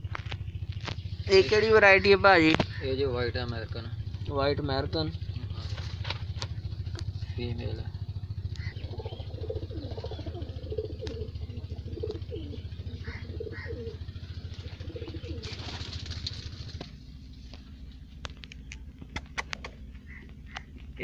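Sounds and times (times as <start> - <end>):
pigeons cooing: 7.8 - 17.1, 19.0 - 20.9
sharp clicks: 18.2 - 20.9.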